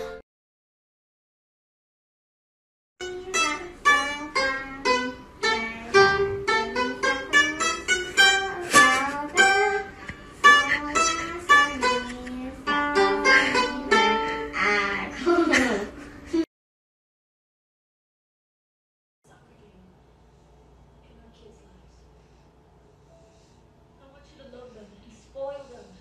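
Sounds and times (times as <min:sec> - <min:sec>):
plucked lute melody: 0:03.0 - 0:16.0.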